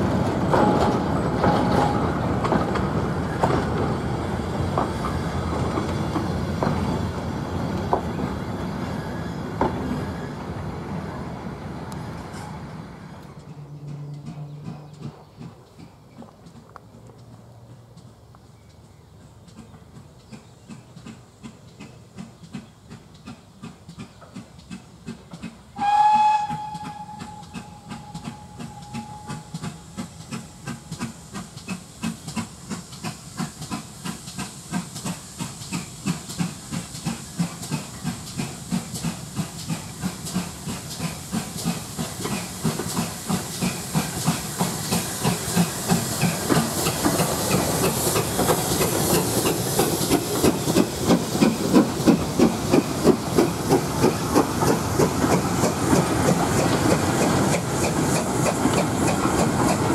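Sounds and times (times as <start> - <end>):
steam locomotive chuffing: 0.0 - 18.2, 19.1 - 59.9
train wagons rumbling: 0.0 - 59.9
steam hiss: 20.3 - 59.9
steam whistle blast: 25.8 - 30.2.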